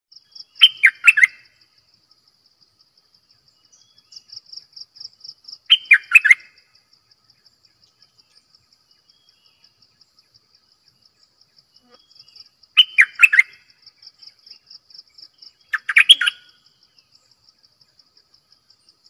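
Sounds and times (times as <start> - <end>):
bulbul whistled calls: 0.4 - 1.6, 5.6 - 6.6, 11.9 - 14.7, 15.3 - 16.7.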